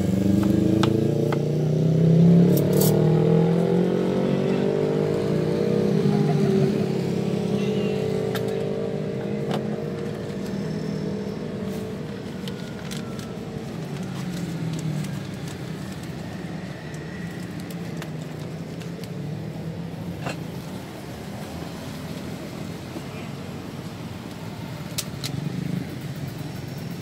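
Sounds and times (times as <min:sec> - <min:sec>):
traffic engine hum: 0:00.0 - 0:27.0.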